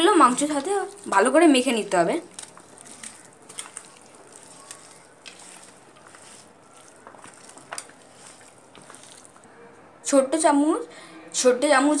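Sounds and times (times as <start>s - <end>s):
wet squelching of kneaded meat: 0.3s - 9.6s.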